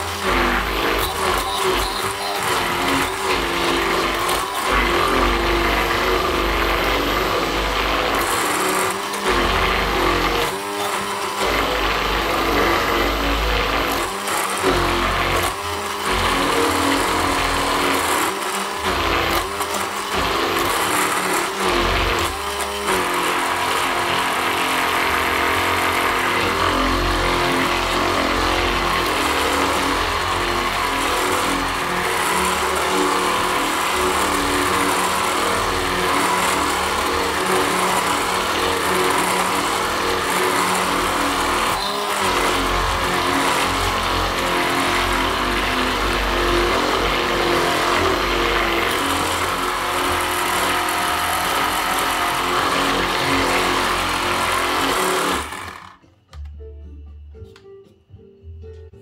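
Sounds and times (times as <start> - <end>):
stick blender running in bowl: 0.0 - 56.0.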